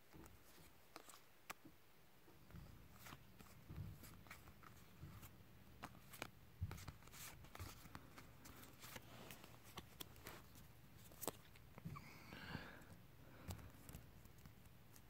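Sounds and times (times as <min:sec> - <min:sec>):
trading cards being flipped: 0:02.9 - 0:11.6.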